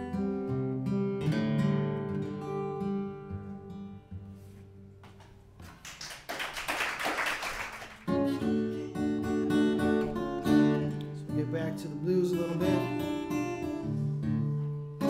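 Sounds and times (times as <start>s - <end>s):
acoustic guitar playing: 0.0s - 5.8s, 7.8s - 15.0s
light applause: 5.6s - 8.4s.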